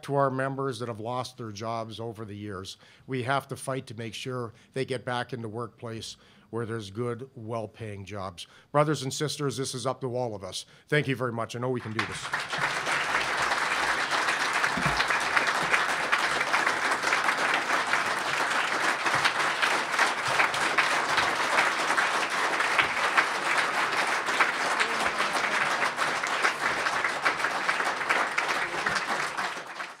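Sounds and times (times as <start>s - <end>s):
crowd applauding: 11.8s - 30.0s.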